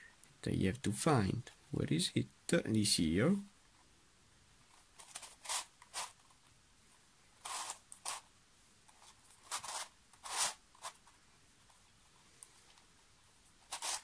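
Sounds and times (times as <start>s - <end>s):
plastic puzzle pieces scraping: 5.0s - 6.2s, 7.4s - 8.3s, 9.0s - 11.0s, 13.6s - 14.0s.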